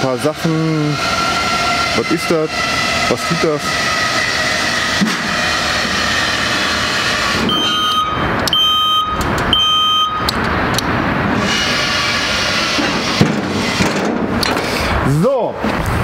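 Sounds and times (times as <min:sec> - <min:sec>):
scissor lift lowering: 0:01.1 - 0:10.8
descent alarm beeping: 0:07.4 - 0:10.4.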